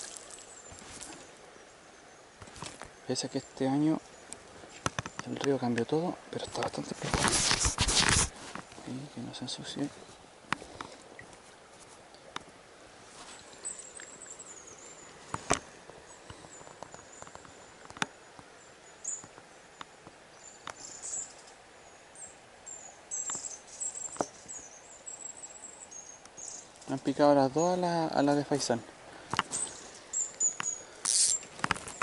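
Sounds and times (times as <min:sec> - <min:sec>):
faint high-pitched chirping: 0:29.5 - 0:31.4
fishing rod and reel clicks: 0:30.4 - 0:32.0.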